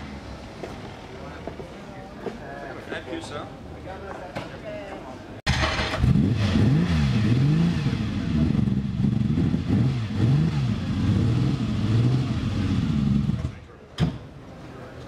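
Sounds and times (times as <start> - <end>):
car engine revving: 5.5 - 13.6.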